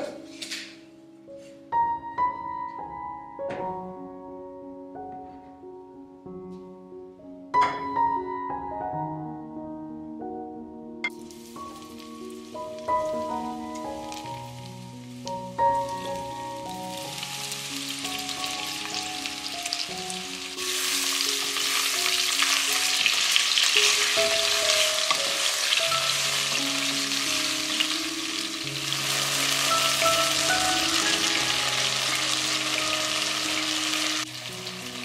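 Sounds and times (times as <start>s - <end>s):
background music: 0.0s - 35.0s
beef sizzling in hot oil: 11.1s - 35.0s.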